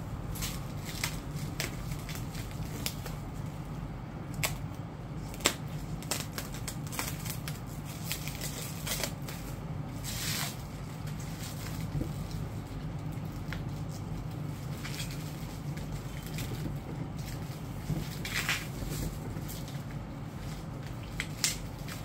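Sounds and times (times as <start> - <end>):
plastic wrap crinkling: 0.1 - 22.0
scissors snipping plastic: 4.3 - 9.6, 13.2 - 22.0.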